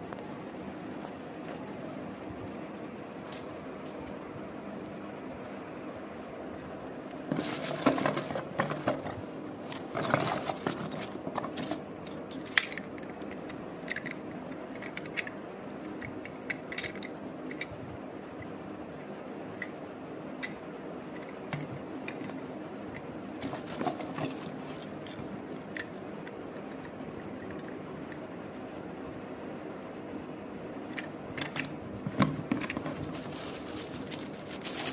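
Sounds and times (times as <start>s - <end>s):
plastic toy rustling and clicking: 7.3s - 15.4s, 16.0s - 17.7s, 23.4s - 26.4s, 31.0s - 34.9s.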